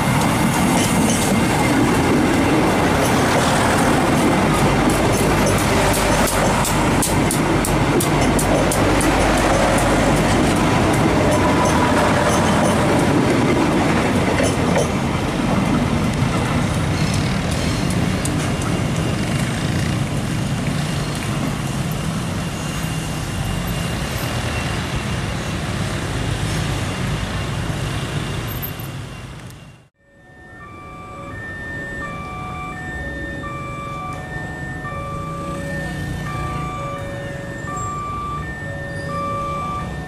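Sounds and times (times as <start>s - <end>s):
train wheels rumbling on rails: 0.0s - 29.1s
clicks of train wheels: 0.1s - 20.0s.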